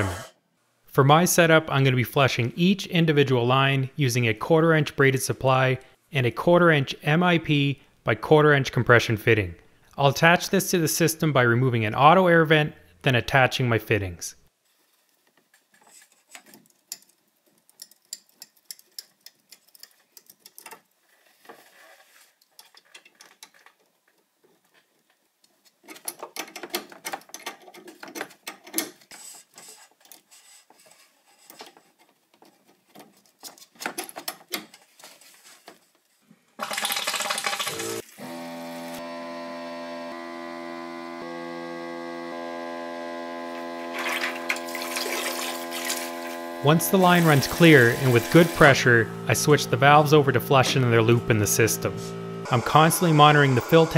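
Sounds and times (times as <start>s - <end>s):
clicks of metal fittings being threaded: 15.7s - 20.9s
steady hum: 40.8s - 53.9s
water rushing: 43.9s - 48.6s.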